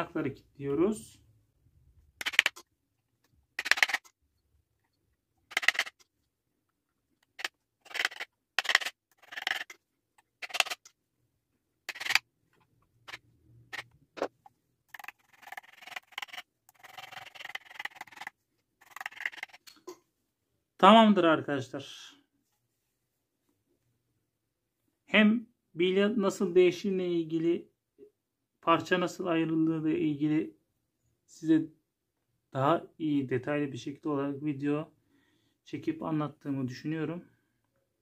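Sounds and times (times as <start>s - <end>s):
metal scrapes and clicks: 3.6s - 4.1s, 5.5s - 6.1s, 7.2s - 10.9s, 11.9s - 12.2s, 14.9s - 19.8s.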